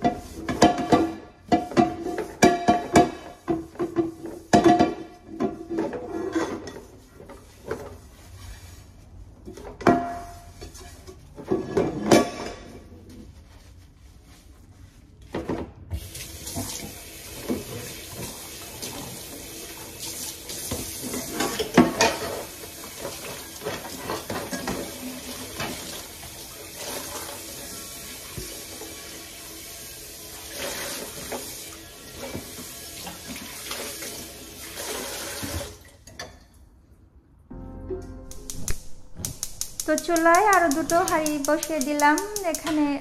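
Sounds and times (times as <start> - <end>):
tap water running into sink: 16.0 - 35.8.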